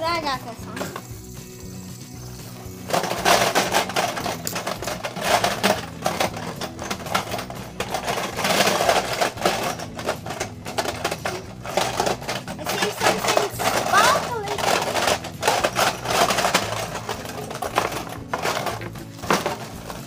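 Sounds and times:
hard plastic clicking and clattering: 2.9 - 20.0.

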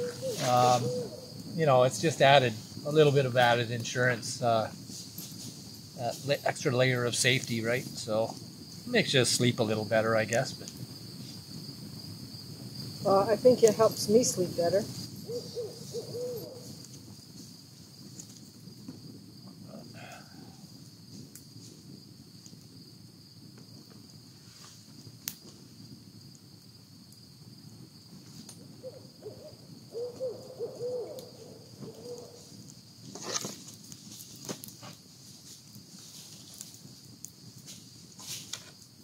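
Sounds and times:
owl hooting: 0.0 - 1.4, 15.2 - 16.8, 28.8 - 32.4
wood clattering onto fire: 0.0 - 13.0, 13.6 - 22.6, 31.1 - 39.0
campfire crackling: 0.0 - 39.0
high insect trill: 0.0 - 39.0.

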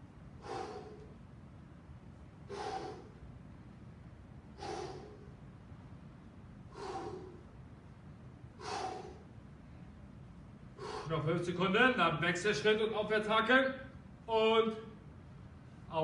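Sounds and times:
low steady hum: 0.0 - 16.0
man breathing hard: 0.3 - 1.4, 2.4 - 3.5, 4.4 - 5.7, 6.6 - 9.9, 10.6 - 11.3.

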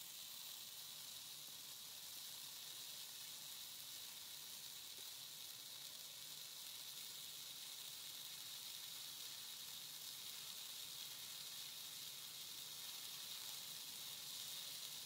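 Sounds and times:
fire hissing: 0.0 - 15.0.

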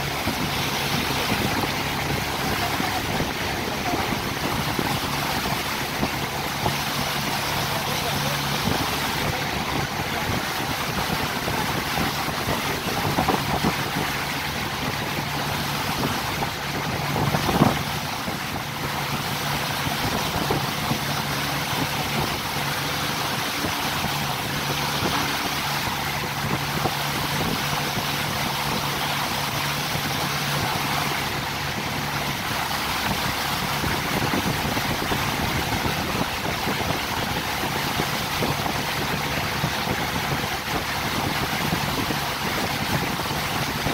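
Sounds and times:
motorboat engine hum: 0.0 - 43.9
water and wind rushing: 0.0 - 43.9.

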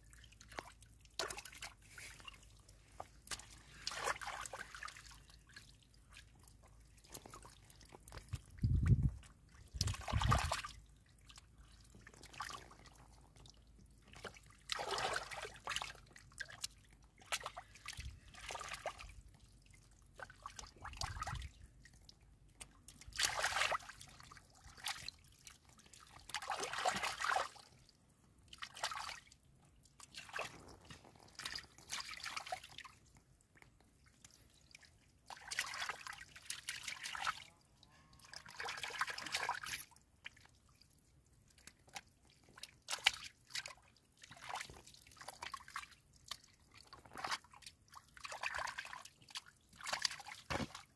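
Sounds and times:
hands splashing in muddy water: 0.1 - 19.4, 22.5 - 27.8, 30.0 - 33.2, 34.2 - 37.5, 42.6 - 50.9.

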